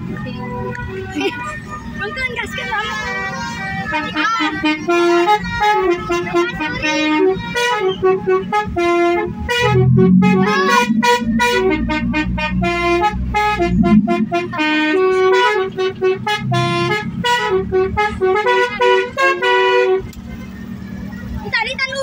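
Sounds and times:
bus engine running: 0.0 - 22.0
musical air horn tune: 2.9 - 20.1.

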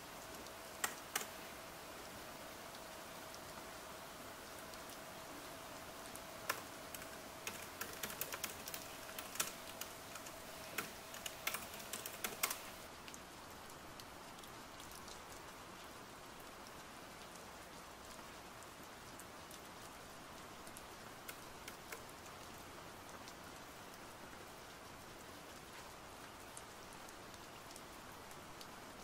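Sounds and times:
rain hissing: 0.0 - 29.0
laptop keyboard typing: 0.8 - 1.4, 6.4 - 12.8, 21.3 - 22.1.

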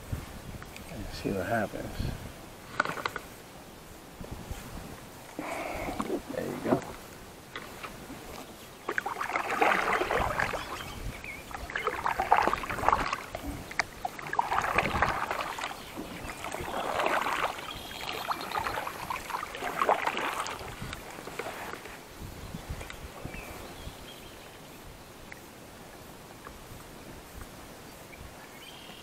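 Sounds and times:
paddle splashing in water: 2.6 - 3.4, 4.4 - 25.4.

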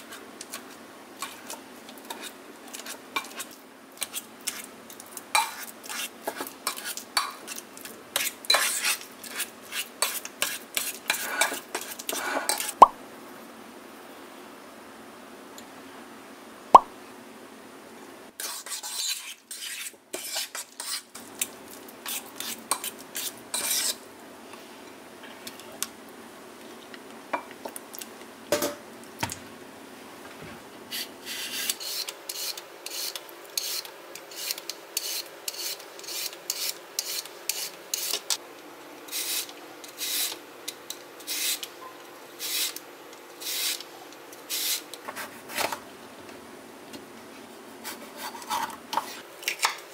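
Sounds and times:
peeler scraping cucumber: 5.5 - 7.6, 8.2 - 12.8, 18.4 - 21.1, 22.0 - 24.0, 30.9 - 38.2, 39.1 - 40.4, 41.2 - 41.7, 42.4 - 42.8, 43.4 - 43.8, 44.5 - 45.8, 47.8 - 49.8
seasoning grinder rasping: 22.0 - 24.0, 30.9 - 38.3, 39.1 - 40.4, 41.2 - 41.7, 42.4 - 42.8, 43.4 - 43.8, 44.5 - 45.7.

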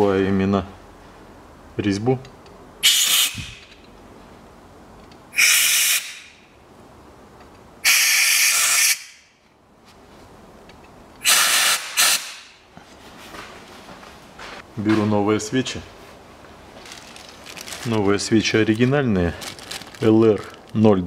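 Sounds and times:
compressed-air blow gun hissing: 11.2 - 12.5.

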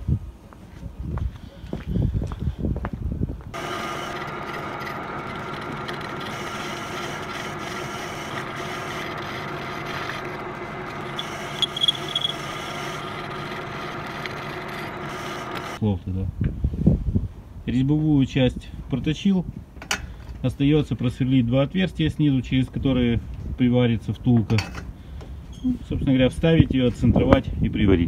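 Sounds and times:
cutting tool scraping metal: 3.6 - 15.8
metal lathe motor hum: 3.6 - 15.8
handling noise: 10.3 - 15.8
high squeal: 11.0 - 15.7.

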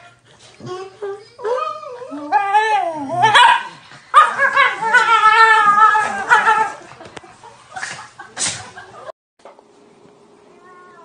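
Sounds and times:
dog whining howl: 0.6 - 6.8.

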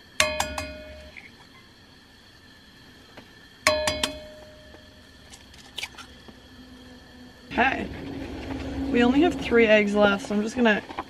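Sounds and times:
pan ringing: 0.2 - 1.2, 3.7 - 5.2
eggs tapped on pan rim: 3.7 - 4.4.

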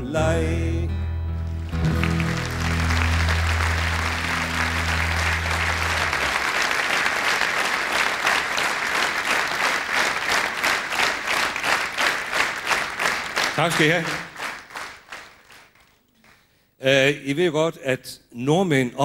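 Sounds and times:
guitar chord ringing: 0.9 - 6.3
audience applauding: 1.4 - 16.5.

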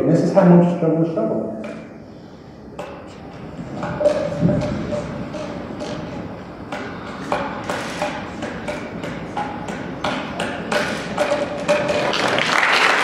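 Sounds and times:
juggling clubs knocking into hands: 2.8 - 12.4
applause: 12.0 - 13.0.

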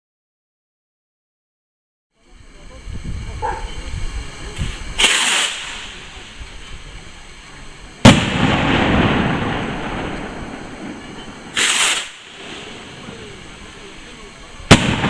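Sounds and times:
firework rocket whoosh: 4.6 - 6.8, 8.0 - 15.0
firework bang echoing: 5.0 - 6.4, 8.0 - 13.8, 14.6 - 15.0.

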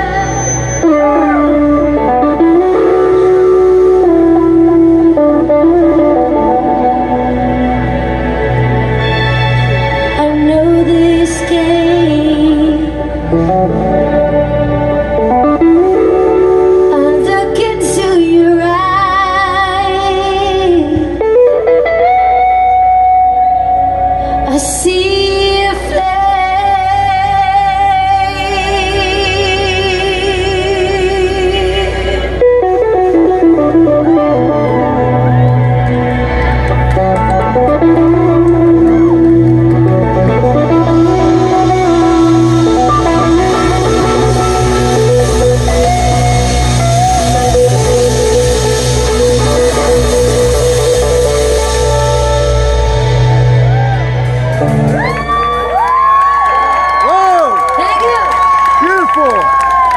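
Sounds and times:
electric bass: 0.0 - 57.6
electric guitars: 0.0 - 59.9
live rock band playing: 0.0 - 59.9
drum kit: 36.3 - 55.9.

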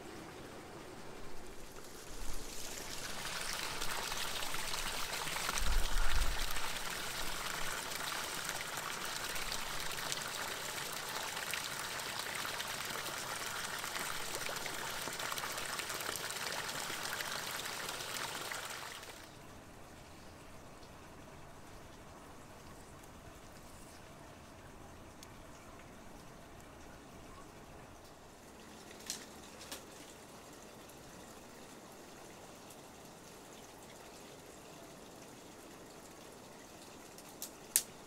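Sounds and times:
water pouring: 1.6 - 19.2.

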